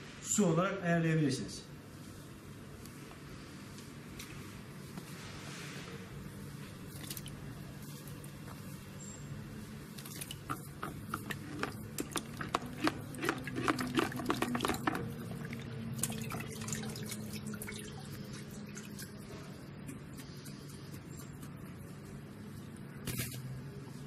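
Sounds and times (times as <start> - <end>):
liquid sloshing in a bucket: 6.9 - 8.2, 9.8 - 19.6
liquid dripping: 9.9 - 20.0.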